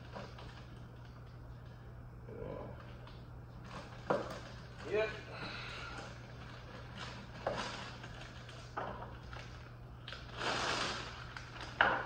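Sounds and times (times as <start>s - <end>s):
steady low hum: 0.0s - 12.0s
plastic bag rustling: 3.6s - 12.0s.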